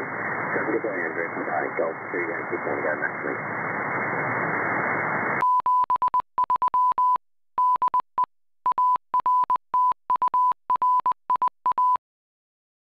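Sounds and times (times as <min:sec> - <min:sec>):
morse code tone: 0:05.4 - 0:12.0.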